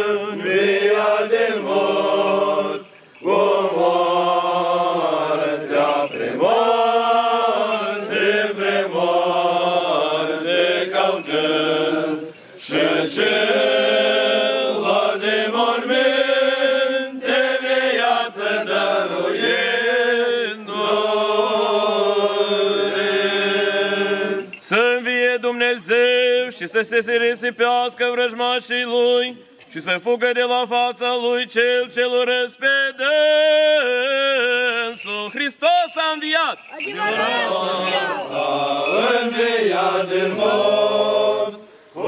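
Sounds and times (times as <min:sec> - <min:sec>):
voices chanting slow melodic lines: 0:00.0 - 0:24.8, 0:36.6 - 0:42.0.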